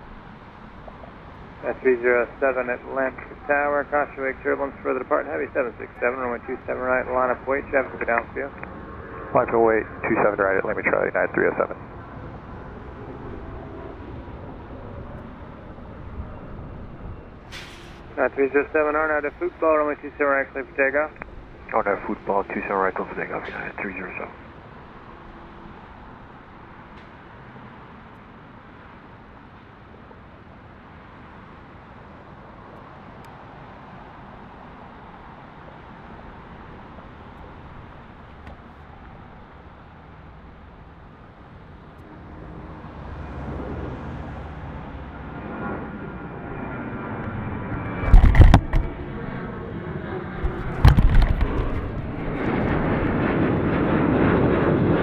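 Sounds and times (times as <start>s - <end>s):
jet engines at takeoff power: 0.0s - 55.0s
low thumps: 47.7s - 49.0s, 50.4s - 52.9s.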